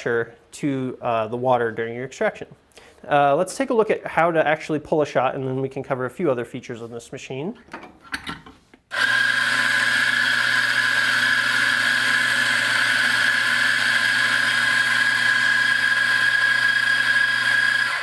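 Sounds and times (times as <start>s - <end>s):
coffee grinder motor whining: 8.9s - 18.0s.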